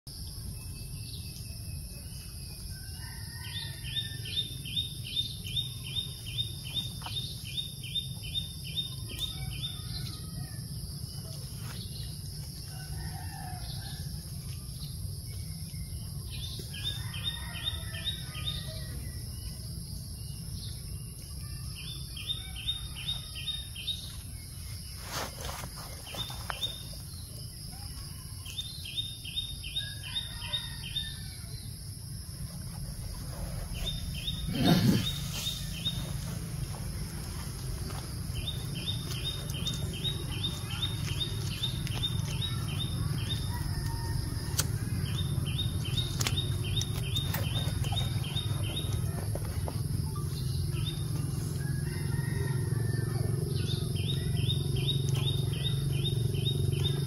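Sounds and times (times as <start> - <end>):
other bird calls: 33.3 - 36.3.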